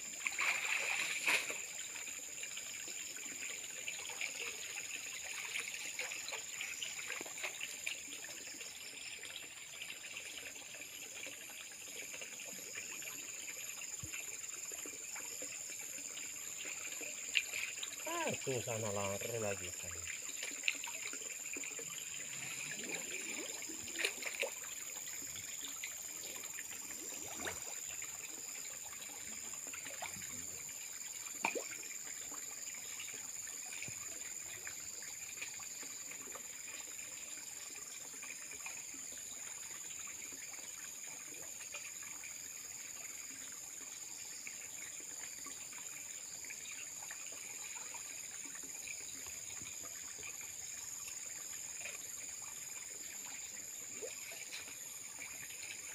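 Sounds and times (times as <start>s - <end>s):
water sloshing and splashing: 0.0s - 2.0s, 16.4s - 30.6s, 53.8s - 55.9s.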